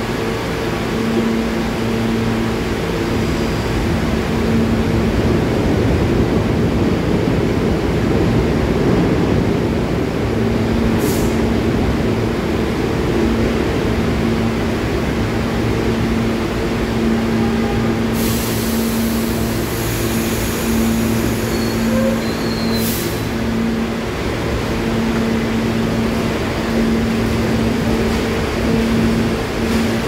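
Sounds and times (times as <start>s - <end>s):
subway car equipment humming: 0.0s - 30.0s
air release hiss: 18.1s - 21.4s.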